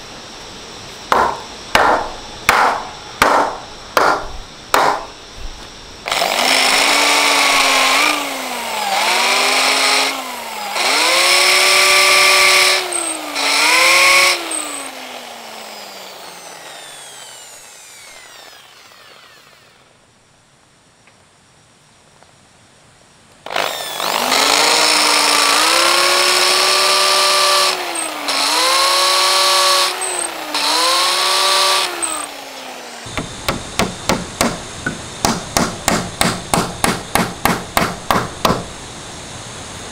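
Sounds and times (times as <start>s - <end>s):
electric drill boring into wood: 6.1s - 19.9s, 23.4s - 34.0s.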